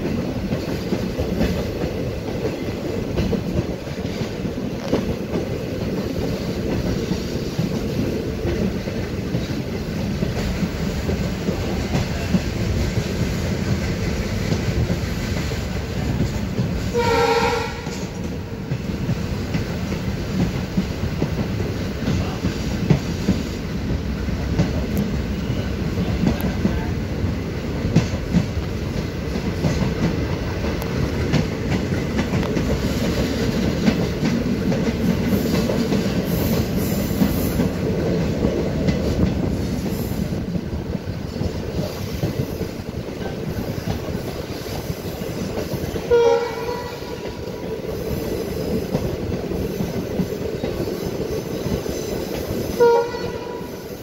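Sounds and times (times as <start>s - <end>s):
train rumble and rail noise: 0.0s - 54.0s
locomotive horn blasts: 16.9s - 18.2s, 46.1s - 47.3s, 52.8s - 53.8s.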